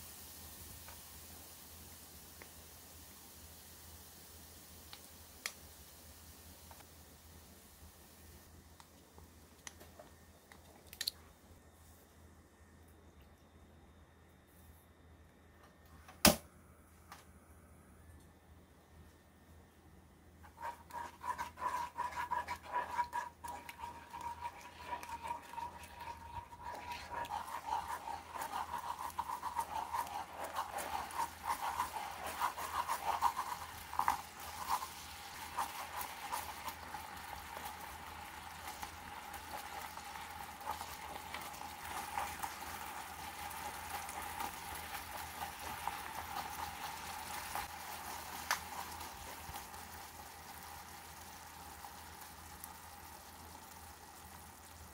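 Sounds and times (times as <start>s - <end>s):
sauce sizzling in oil: 0.0s - 8.4s, 20.4s - 54.9s
wooden spoon stirring and scraping: 20.4s - 50.1s.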